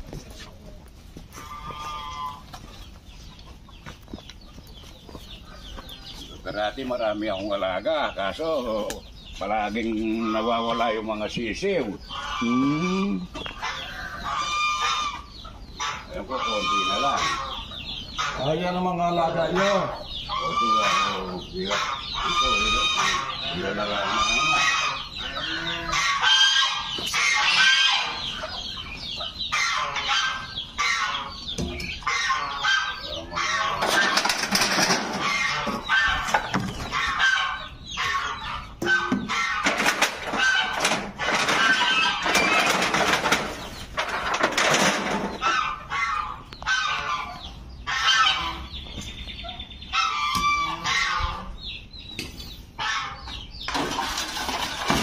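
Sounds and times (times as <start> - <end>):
chickens clucking: 0.0 - 55.0
geese honking: 1.3 - 2.8, 9.4 - 51.8, 52.7 - 55.0.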